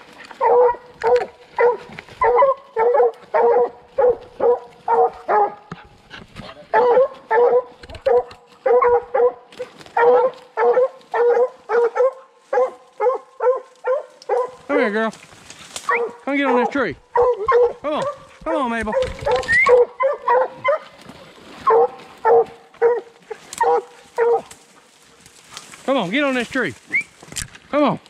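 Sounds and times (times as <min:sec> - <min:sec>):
hound barking: 0:00.3 - 0:05.7, 0:06.6 - 0:14.9, 0:15.8 - 0:21.0, 0:21.6 - 0:24.8.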